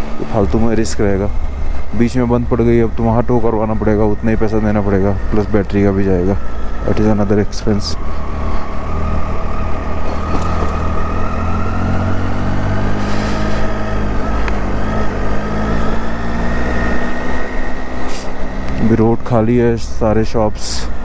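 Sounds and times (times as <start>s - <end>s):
thin whine rising in pitch: 0.2s - 19.4s.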